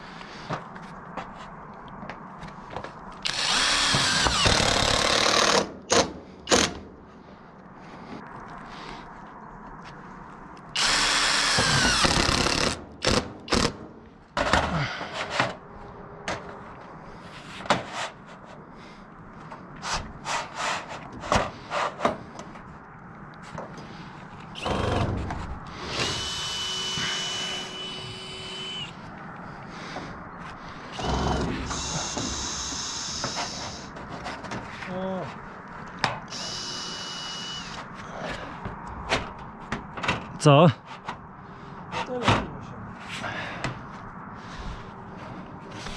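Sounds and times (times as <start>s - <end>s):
drill driving screws into metal: 3.2s - 6.8s, 10.8s - 13.8s, 25.8s - 28.9s, 36.3s - 37.8s.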